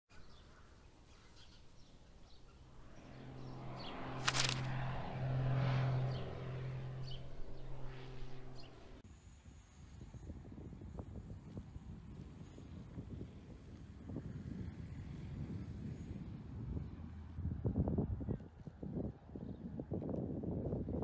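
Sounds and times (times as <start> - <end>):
low steady hum: 0.4 - 9.0
sharp swoosh: 2.5 - 9.0.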